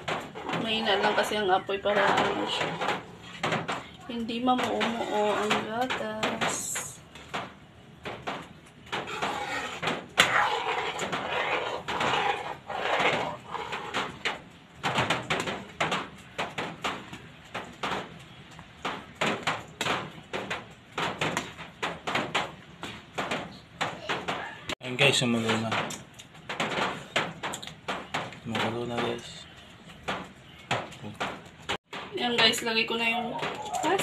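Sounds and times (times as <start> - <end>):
ladle scraping metal pot: 0.1 - 3.4, 4.6 - 6.9, 9.0 - 14.3.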